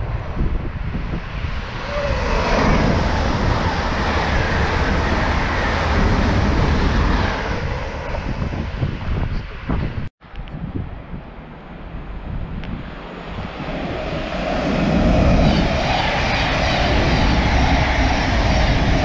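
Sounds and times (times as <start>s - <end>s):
train passing: 1.5s - 8.8s, 12.8s - 19.0s.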